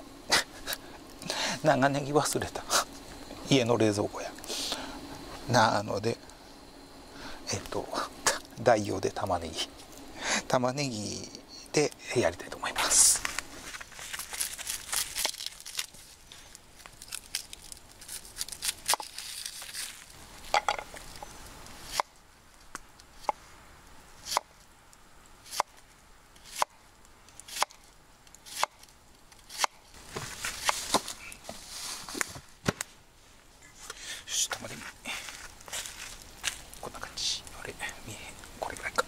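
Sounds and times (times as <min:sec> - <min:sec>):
papery onion skin tearing: 0:13.2 - 0:20.2.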